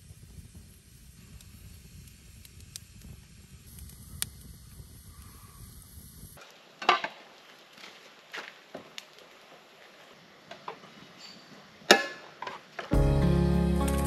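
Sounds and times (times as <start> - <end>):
campfire flames rumbling: 0.0 - 6.6
fire crackling and popping: 0.0 - 11.0.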